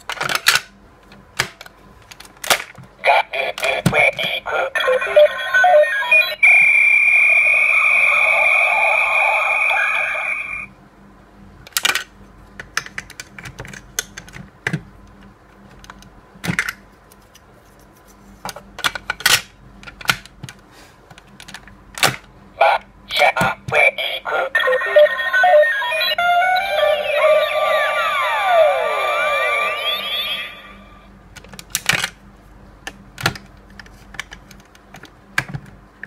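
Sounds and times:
high-pitched electronic tone: 4.8s - 10.7s, 24.2s - 31.1s.

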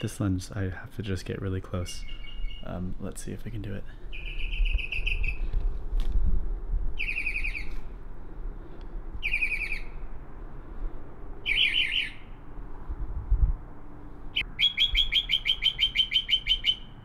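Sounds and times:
mockingbird trilling song: 1.8s - 2.9s, 4.0s - 5.5s, 7.0s - 7.9s, 9.2s - 10.0s, 11.4s - 12.4s, 14.4s - 17.0s.

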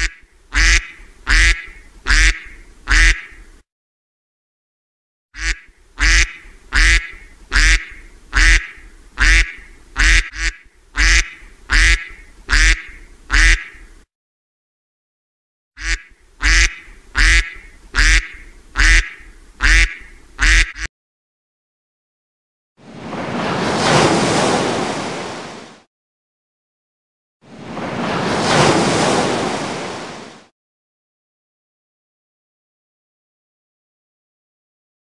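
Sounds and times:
duck quacking: 0.0s - 3.4s, 5.4s - 13.9s, 15.8s - 20.9s.

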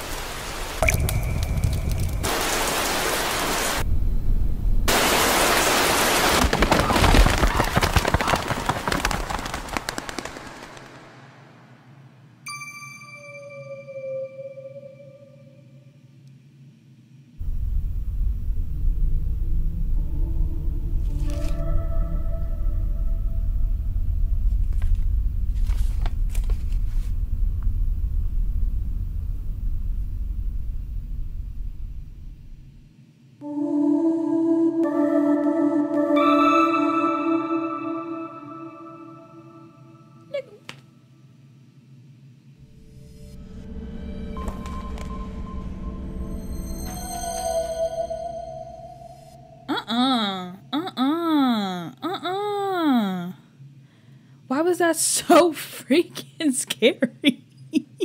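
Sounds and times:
heavy rain hissing: 0.0s - 3.8s, 4.8s - 7.0s
fire crackling and popping: 0.8s - 3.1s, 4.9s - 11.4s
deep low rumble: 17.4s - 32.9s.

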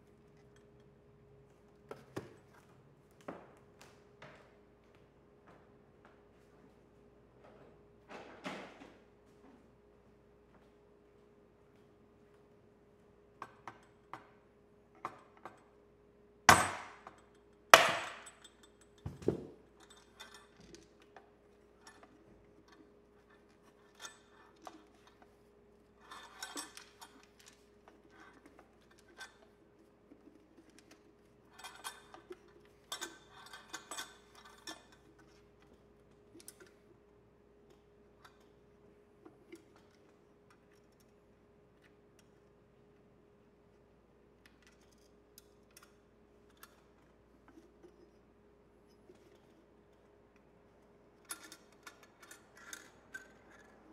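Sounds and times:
light clicks and rattles: 48.9s - 53.9s.

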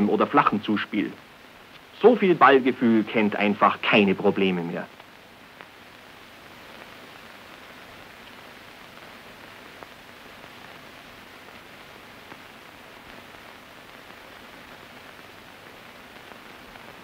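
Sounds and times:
film soundtrack hiss: 0.0s - 17.0s
faint clicks: 1.7s - 1.9s.

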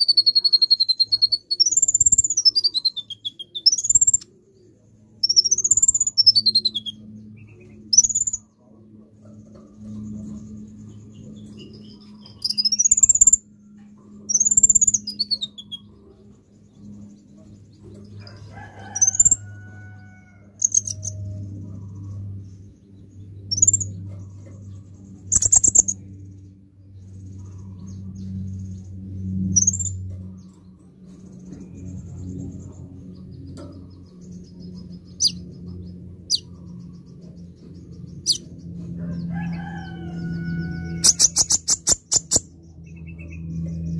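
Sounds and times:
low steady hum: 0.0s - 43.9s
bird sharp high chirps: 38.2s - 38.5s, 40.9s - 43.4s.

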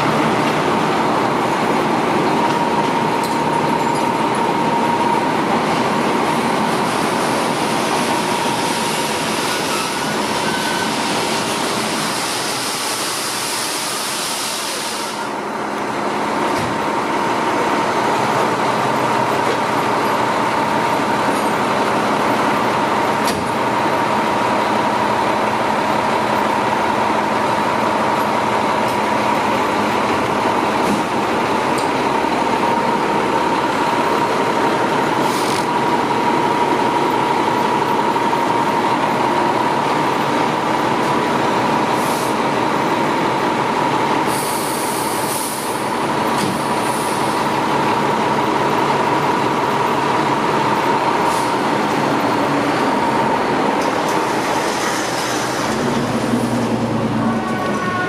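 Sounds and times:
diesel engine running with whine: 15.1s - 58.0s.

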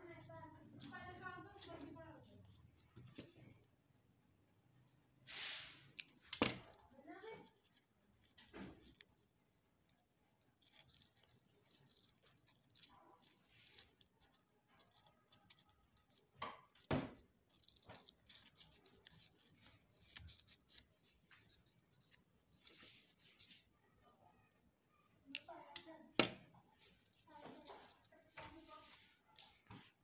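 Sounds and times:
foam sheets rustling and crinkling: 5.3s - 9.3s, 26.8s - 30.0s.

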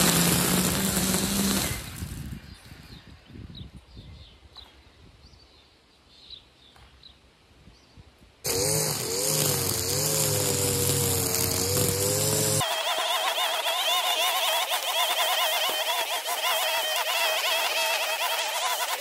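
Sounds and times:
string trimmer cutting grass: 0.0s - 2.3s, 8.4s - 19.0s.

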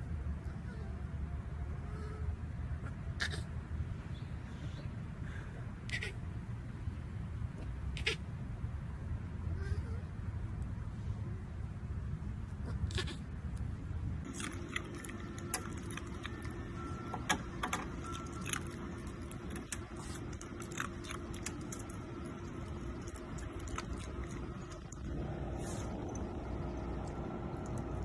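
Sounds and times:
dog biting icicles: 18.2s - 25.0s.

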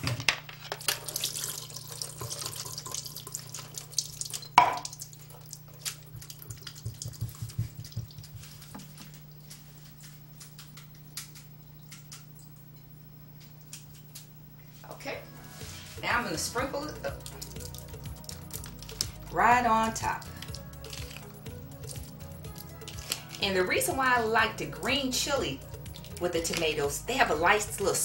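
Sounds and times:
liquid splashing into metal sink: 0.8s - 9.1s
colander dripping: 0.8s - 14.5s, 15.6s - 28.0s.

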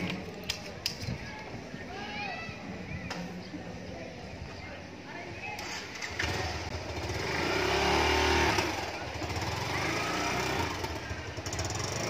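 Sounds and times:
small motorcycle engine revving: 5.6s - 12.0s.

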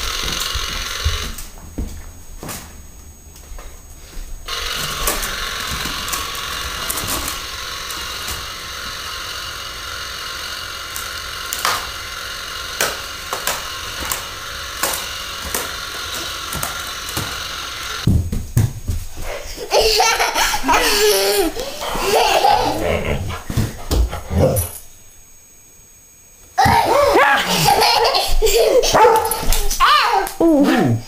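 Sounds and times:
toy chainsaw running: 0.0s - 1.5s, 4.5s - 18.1s, 19.5s - 23.2s, 26.6s - 30.3s.

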